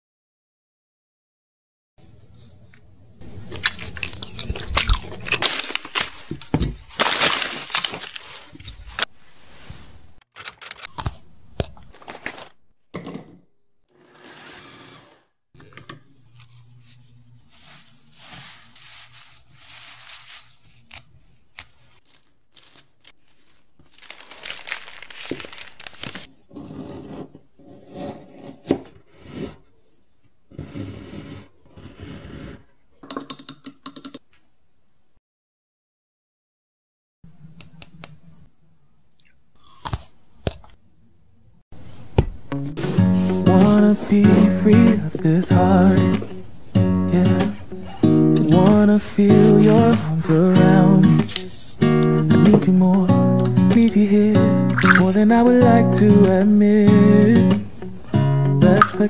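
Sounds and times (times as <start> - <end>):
loud crinkling and crunching: 3.2 - 9.2, 17.4 - 26.3.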